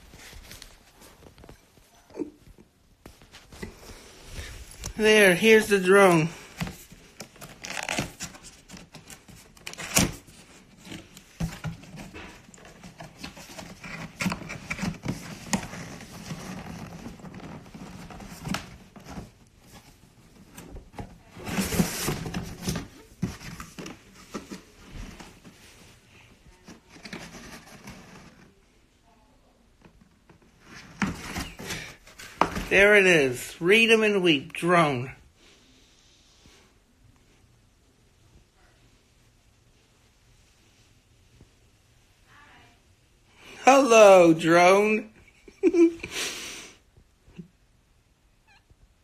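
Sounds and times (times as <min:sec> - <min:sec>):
cardboard scraping: 0:03.0 - 0:28.6, 0:30.3 - 0:32.8
cardboard box being handled: 0:06.2 - 0:28.6.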